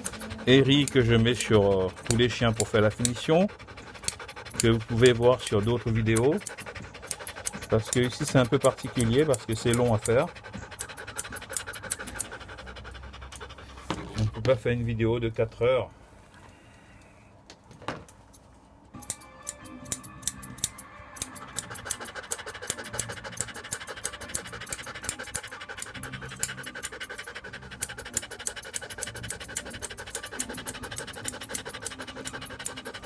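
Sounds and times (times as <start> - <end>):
scissors snipping hair: 0.0 - 12.3, 19.0 - 33.0.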